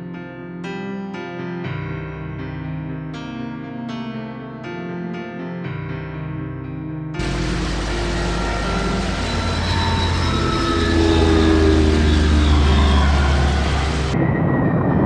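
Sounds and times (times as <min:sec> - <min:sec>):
propeller aircraft engines running: 0:07.2 - 0:14.2.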